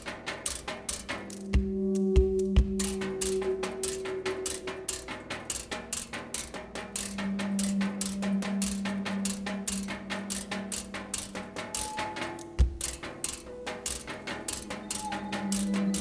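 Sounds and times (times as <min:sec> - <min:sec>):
fast dry struck percussion: 0:00.0 - 0:16.0
low sustained drone: 0:01.7 - 0:05.9, 0:06.9 - 0:12.6.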